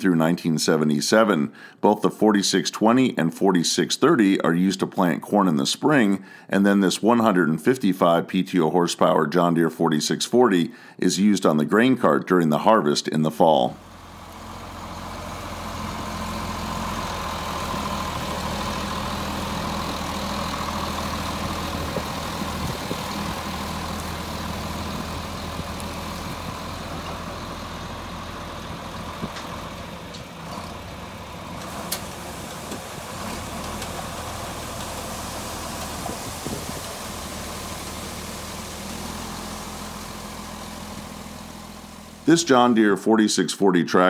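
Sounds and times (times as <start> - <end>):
tractor diesel engine running: 13.6 - 42.9.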